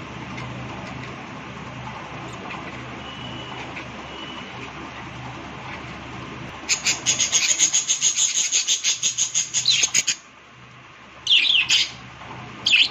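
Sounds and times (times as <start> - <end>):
budgerigars chirping: 2.2 - 6.0, 6.6 - 10.2, 11.3 - 12.0, 12.6 - 12.9.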